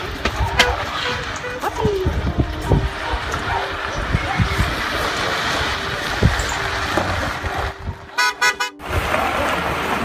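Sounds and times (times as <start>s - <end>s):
wind buffeting microphone: 0.0s - 8.1s
vans rolling on gravel: 0.0s - 10.0s
vehicle horn honking: 8.1s - 8.8s.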